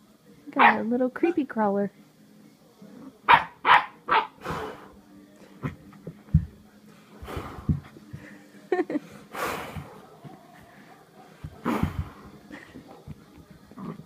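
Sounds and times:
soft thumps on carpet: 5.6 - 6.6, 7.2 - 8.3.

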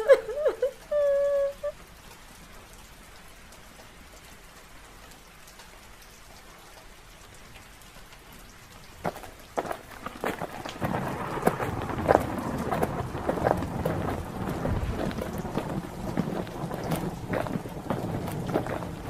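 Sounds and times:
rain hiss: 0.0 - 19.0
thunder rolling: 9.6 - 19.0
sharp thunder cracks: 10.1 - 19.0.

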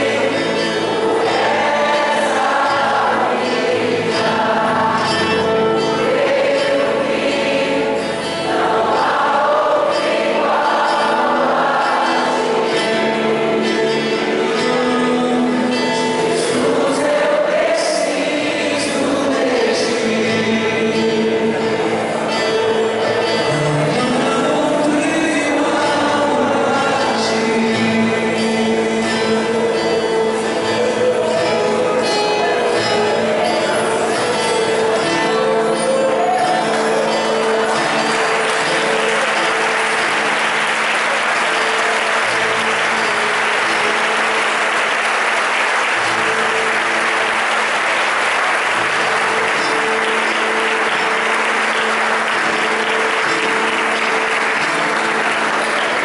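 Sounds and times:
acoustic guitar: 0.0 - 56.0
congregation applauding: 0.0 - 56.0
worship band with singing: 0.0 - 56.0.

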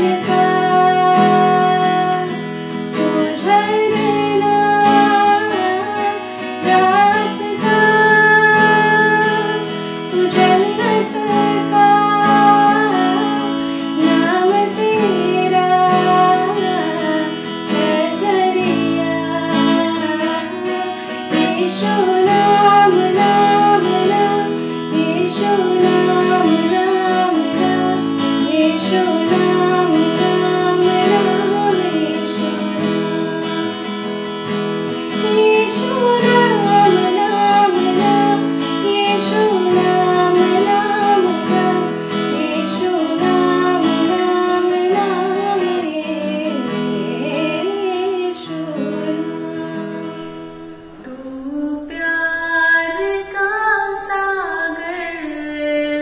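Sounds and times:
strummed acoustic guitar: 0.0 - 56.0
woman singing unaccompanied: 0.0 - 56.0
woman singing worship song: 0.0 - 56.0.

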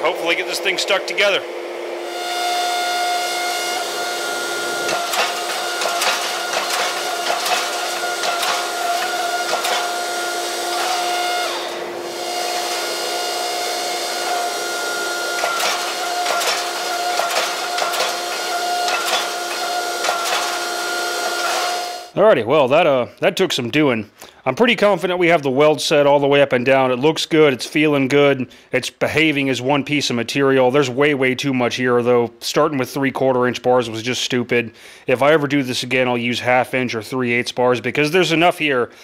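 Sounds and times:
hydraulic pump whine: 0.0 - 22.2.

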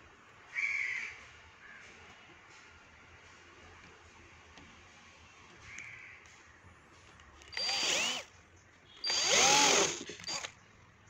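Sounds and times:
cordless drill spinning: 7.4 - 8.3, 9.0 - 10.6.

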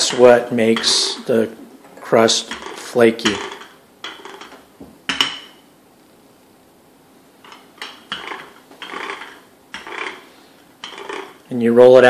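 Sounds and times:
rolling pin rolling dough: 0.0 - 5.4, 7.4 - 11.5.

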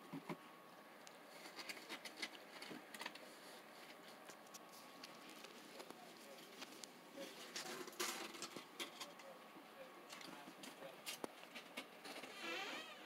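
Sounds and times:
ferret moving over carpet: 1.1 - 8.0.

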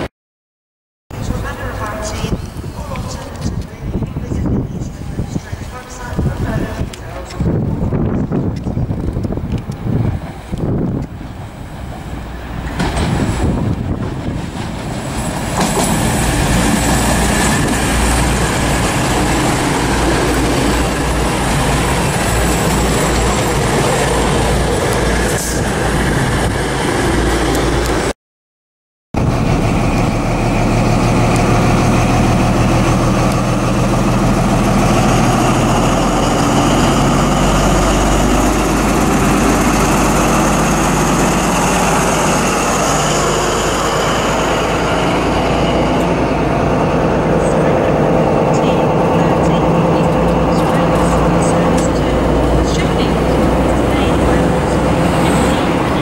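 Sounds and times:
diesel train passing on rails: 1.2 - 28.1, 29.2 - 56.0
diesel engine idling low hum: 29.2 - 56.0.

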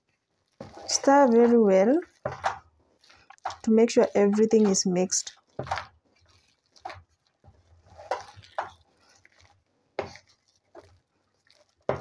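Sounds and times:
wooden spoon scraping metal bowl: 0.5 - 12.0.

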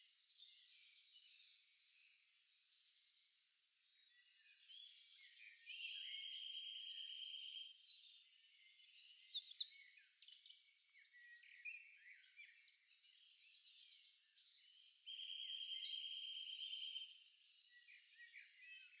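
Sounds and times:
small birds chirping and twittering: 0.0 - 19.0.

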